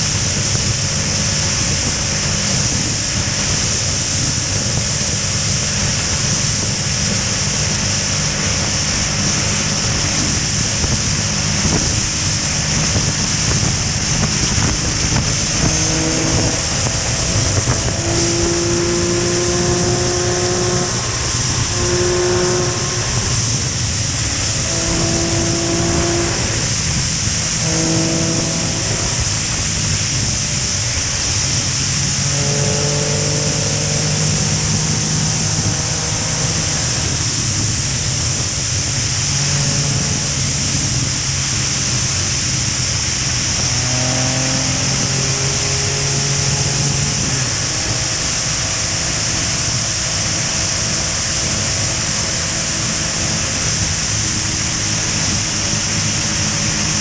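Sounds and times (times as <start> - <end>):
wind rush over camera: 0.0 - 32.2
motorcycle engines cruising: 0.0 - 57.0.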